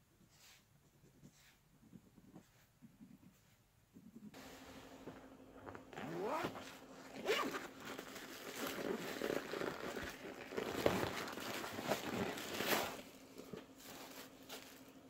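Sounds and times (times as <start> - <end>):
material ripping and tearing: 6.0 - 13.1.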